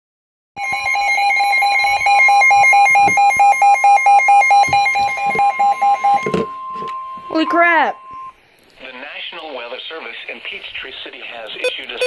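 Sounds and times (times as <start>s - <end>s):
rapid repeating beeps: 11.6s - 12.0s.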